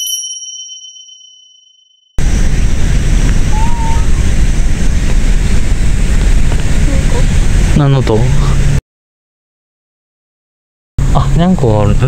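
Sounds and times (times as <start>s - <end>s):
chime: 0.0s - 2.1s
wind buffeting microphone: 2.2s - 8.8s
faint wavering call: 3.5s - 4.2s.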